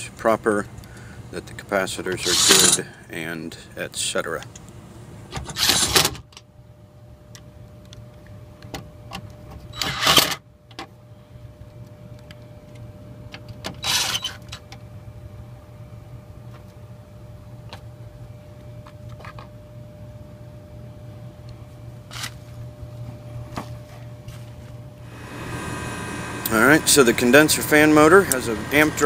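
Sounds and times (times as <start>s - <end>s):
steady low hum: 10.5s - 13.8s, 14.6s - 29.0s.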